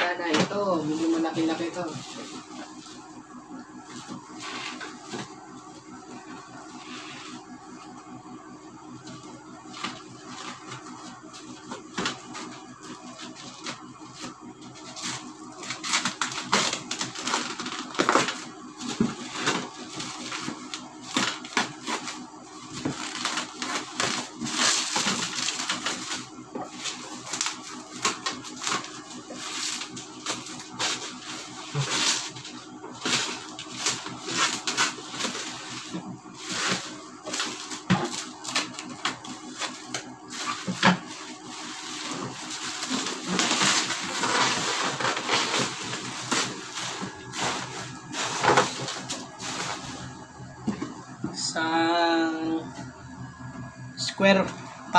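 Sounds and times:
plastic packaging crinkling: 0:14.9 - 0:50.2.

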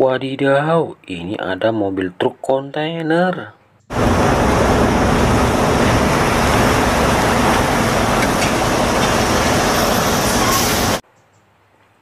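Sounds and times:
lorry engine and road rumble: 0:03.9 - 0:11.0.

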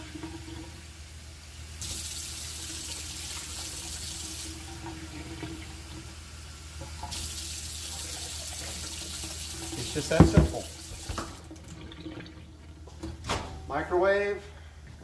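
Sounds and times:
tap water splashing into a cup: 0:09.7 - 0:12.3.

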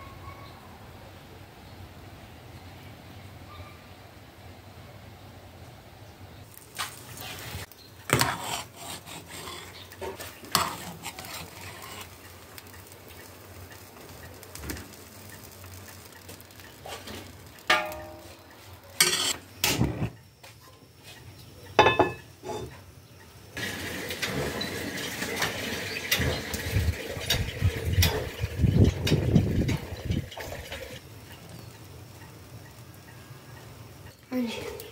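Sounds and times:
steady hiss: 0:04.4 - 0:34.9
metal skimmer clanking on pots: 0:16.8 - 0:20.0, 0:21.8 - 0:22.7, 0:24.1 - 0:31.0.

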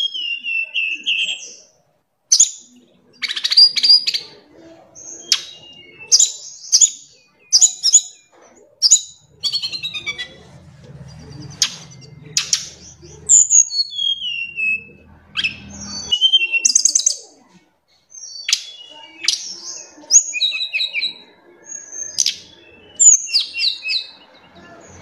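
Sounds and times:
bird whistling and trilling: 0:00.0 - 0:01.7, 0:05.1 - 0:10.4, 0:11.2 - 0:17.3, 0:18.2 - 0:24.2
faint low hum: 0:01.5 - 0:25.0.

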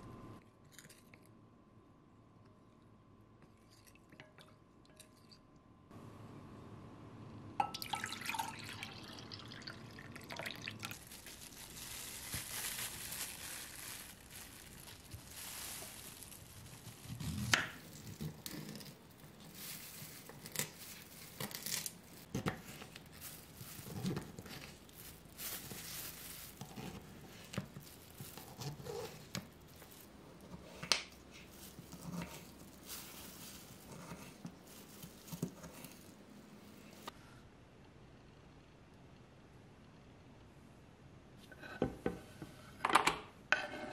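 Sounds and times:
thick drink pouring into glass: 0:07.6 - 0:11.1.

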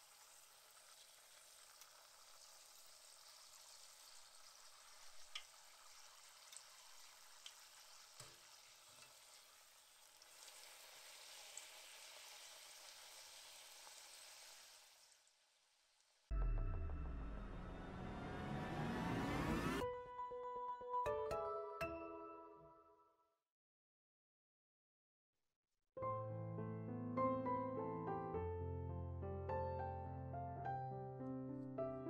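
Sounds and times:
dough sizzling in oil: 0:00.0 - 0:16.3.

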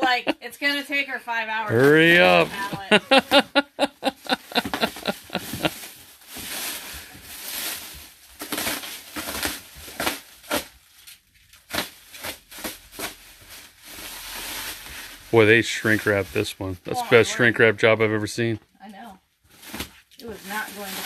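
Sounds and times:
plastic wrap crinkling and tearing: 0:01.7 - 0:03.4, 0:04.0 - 0:16.5, 0:19.5 - 0:21.0.

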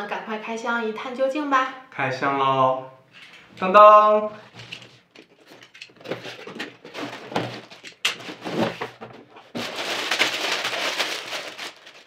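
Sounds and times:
plastic bags crinkling: 0:04.6 - 0:12.0.

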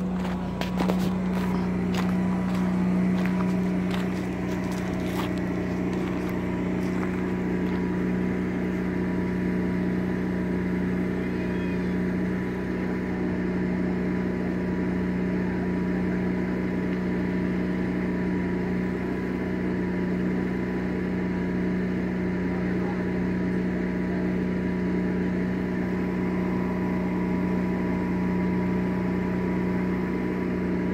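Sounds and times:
engine humming: 0:00.0 - 0:30.9.

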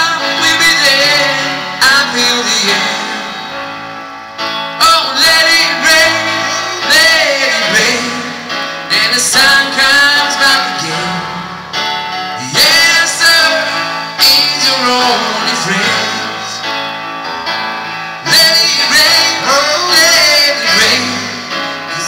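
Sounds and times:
person singing into microphone: 0:00.0 - 0:03.4, 0:04.8 - 0:11.6, 0:12.4 - 0:16.7
digital piano chords: 0:00.0 - 0:22.0.

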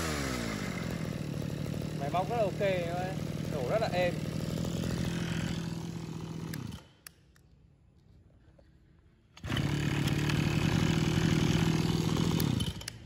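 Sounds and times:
brush cutter engine running: 0:00.0 - 0:07.0, 0:09.4 - 0:13.0.

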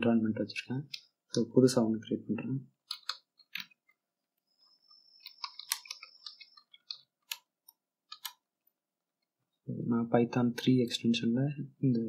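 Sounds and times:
keyboard typing: 0:02.8 - 0:04.0, 0:04.9 - 0:08.5.

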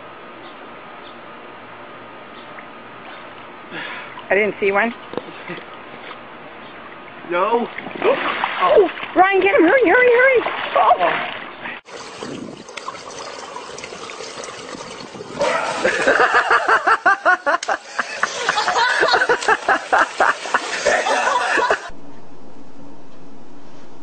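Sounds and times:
person laughing hard: 0:15.4 - 0:21.9.

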